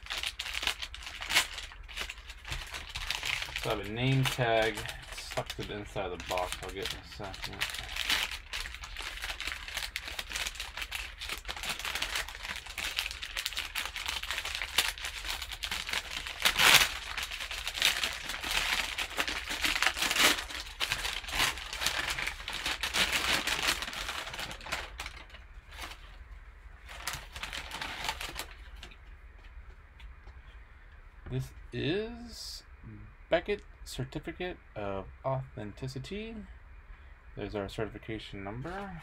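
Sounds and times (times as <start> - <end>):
paper bag crinkling: 0.0 - 26.2, 26.8 - 29.0.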